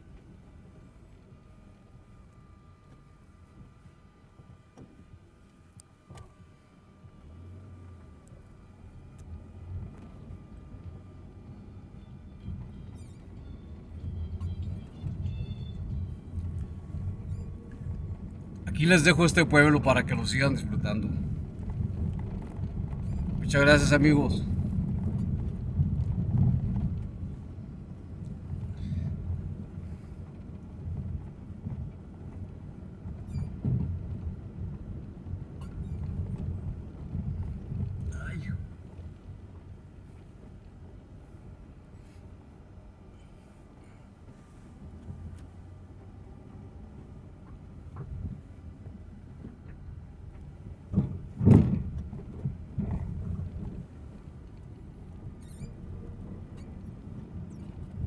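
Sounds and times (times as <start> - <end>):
car engine and tyres rumbling: 0.0 - 58.0
loud thump: 50.9 - 52.0.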